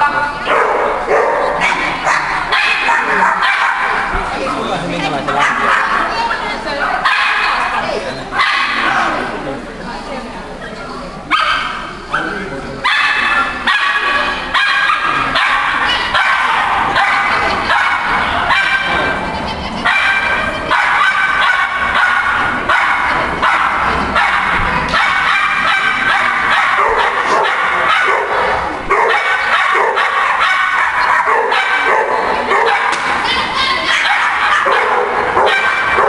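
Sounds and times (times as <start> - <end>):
dog barking rapidly: 0.4 - 4.1, 5.4 - 6.1, 7.0 - 7.7, 8.4 - 9.1, 11.3 - 19.1, 19.8 - 33.2, 33.8 - 36.0.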